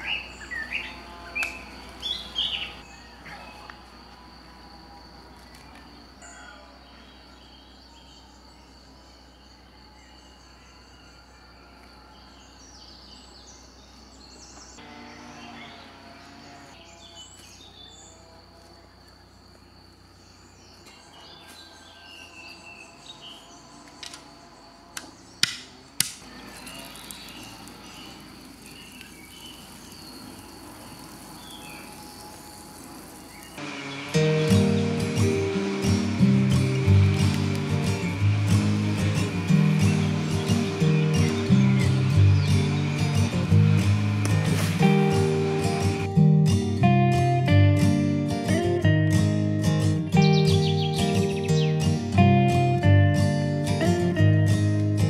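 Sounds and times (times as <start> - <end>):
high insect-like tone: 14.8 - 48.5
sharp knocks: 25.4 - 26.2.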